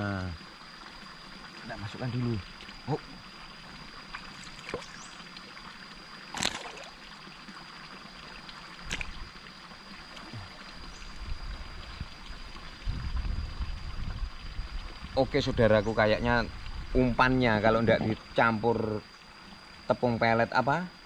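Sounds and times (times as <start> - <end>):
faint high whine: 0.0 - 21.0
trickling water: 0.0 - 21.0
fish splashing into water: 4.0 - 5.1, 6.3 - 7.3, 8.3 - 10.8.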